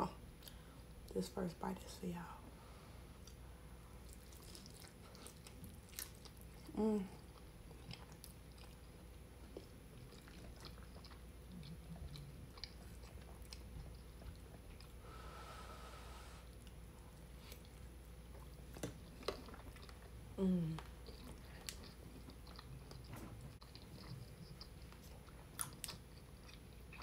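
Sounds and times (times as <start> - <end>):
close chewing: 4.0 - 15.0, 16.5 - 27.0
person humming mm: 6.7 - 7.1, 20.4 - 20.9.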